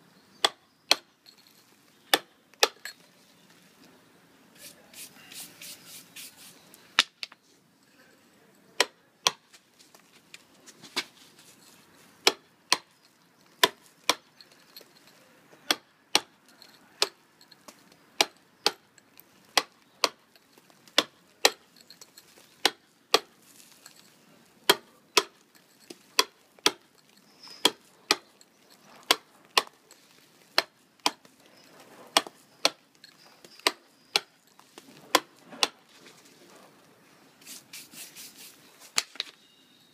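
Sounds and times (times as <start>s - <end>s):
mallet striking chisel on stone: 2.1s - 2.9s, 15.6s - 18.8s, 19.6s - 20.2s, 21.0s - 24.0s, 24.6s - 31.3s, 32.1s - 34.3s.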